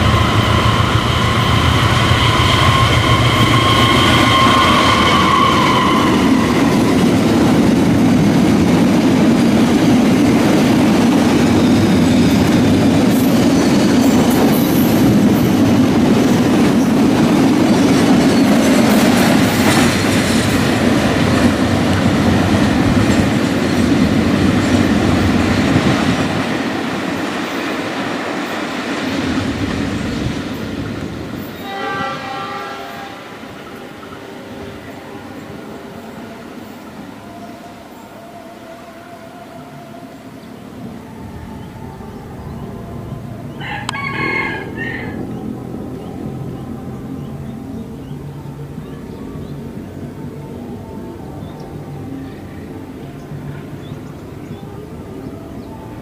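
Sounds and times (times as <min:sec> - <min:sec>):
locomotive horn chord: 0:00.0 - 0:07.2, 0:31.6 - 0:44.1
train wheel clatter: 0:00.0 - 0:32.2
train rumbling past: 0:00.0 - 0:56.0.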